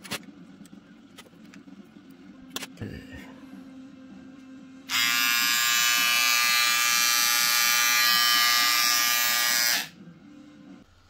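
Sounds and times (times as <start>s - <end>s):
electric trimmer buzzing: 4.9s - 10.0s.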